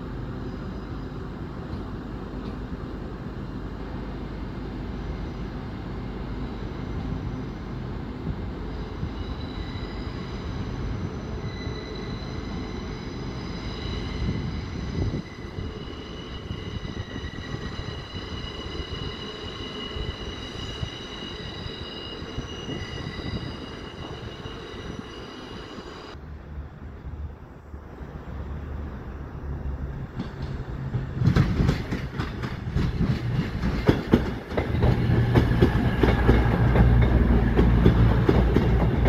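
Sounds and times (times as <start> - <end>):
train low rumble: 0.0 - 39.0
train wheels squealing: 6.2 - 26.2.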